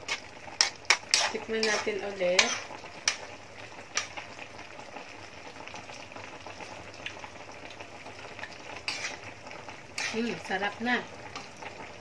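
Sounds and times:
stew bubbling in a wok: 0.0s - 12.0s
spatula scraping swish: 8.9s - 9.2s.

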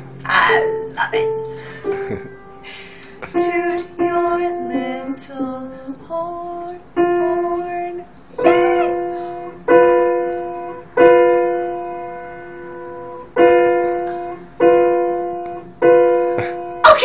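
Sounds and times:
piano note struck: 7.0s - 16.9s.

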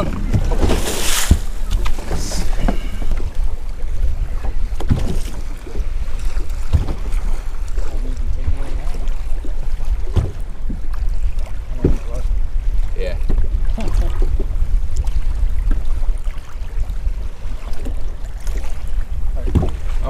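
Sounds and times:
sharp thumps: 0.0s - 2.9s
water slapping against hull: 0.0s - 20.0s
wind buffeting microphone: 0.0s - 20.0s.

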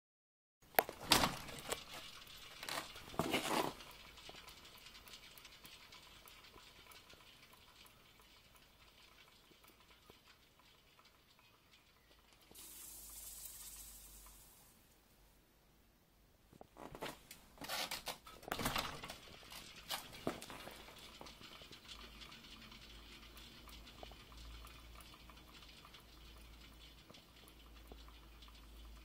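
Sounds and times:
spinning wheel ticking: 3.8s - 14.4s, 20.7s - 29.0s
steady hiss: 12.3s - 15.8s.

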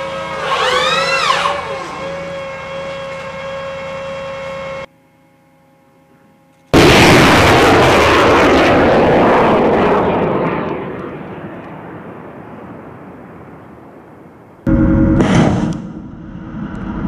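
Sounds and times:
rocket motor rushing: 0.0s - 4.9s
rocket launch blast: 6.7s - 17.0s.

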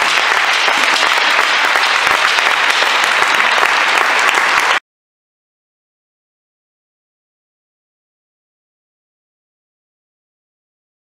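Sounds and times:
applause: 0.0s - 4.8s.

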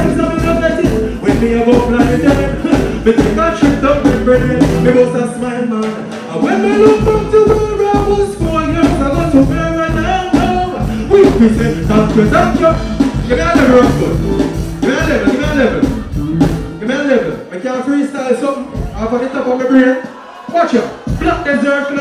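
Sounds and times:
person singing into microphone: 0.0s - 8.1s
backing track with drum beat: 0.0s - 17.5s, 18.3s - 22.0s.

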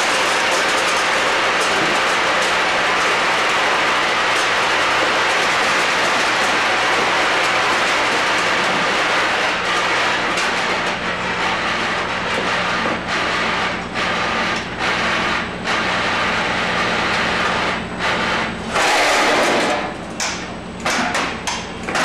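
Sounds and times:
packaging machine clatter: 0.0s - 11.0s.

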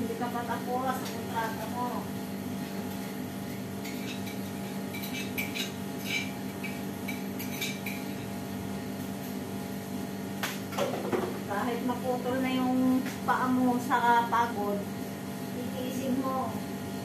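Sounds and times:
dishes and utensils clinking: 3.8s - 8.2s.

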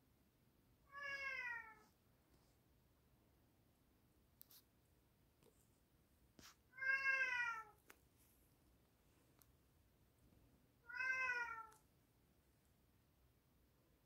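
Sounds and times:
cat meowing: 0.9s - 1.8s, 6.8s - 7.8s, 10.8s - 11.8s.

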